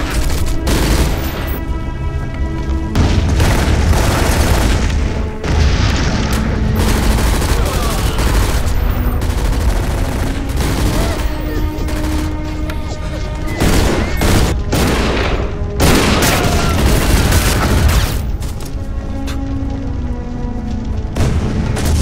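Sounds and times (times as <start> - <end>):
rapid gunfire: 0.0 - 1.6, 3.0 - 6.2, 6.8 - 12.6, 13.6 - 18.2
dramatic music: 0.0 - 22.0
booming blasts: 2.9 - 11.4, 13.6 - 18.4, 21.0 - 22.0.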